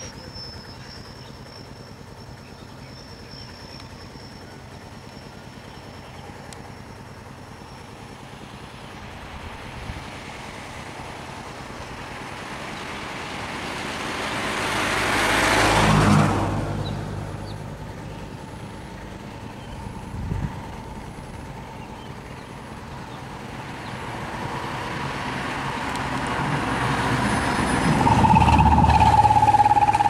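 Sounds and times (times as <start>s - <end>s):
low traffic hum: 0.0s - 30.0s
vehicle driving past: 3.0s - 21.5s, 22.4s - 30.0s.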